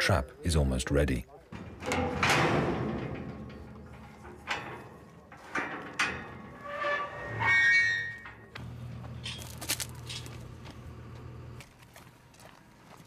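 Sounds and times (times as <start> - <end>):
metal gates clanging: 1.5 - 11.6
metal squeal: 1.6 - 8.6.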